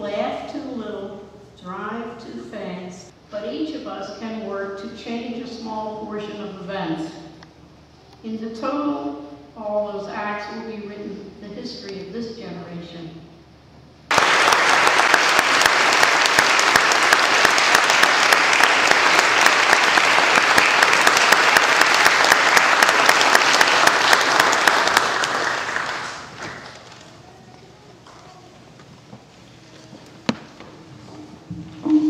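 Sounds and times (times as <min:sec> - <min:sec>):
audience applauding: 0:14.1 - 0:27.0.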